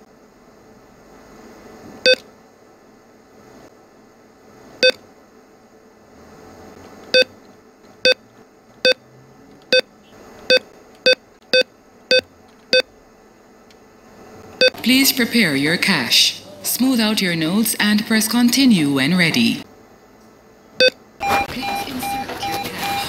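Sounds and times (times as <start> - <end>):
keypad beeps: 20.8 - 23.0.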